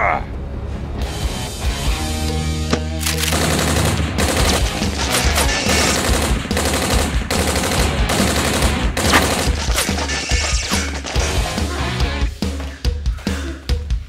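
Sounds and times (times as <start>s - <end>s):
background music with bass: 0.0s - 14.0s
automatic gunfire bursts: 3.0s - 10.0s.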